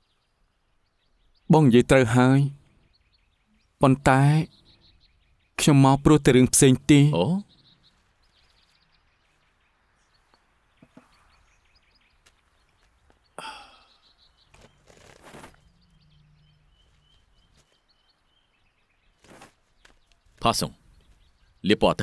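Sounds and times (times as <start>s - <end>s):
small birds chirping: 0.0s - 22.0s
short rustling bursts: 14.5s - 15.8s, 19.2s - 20.5s.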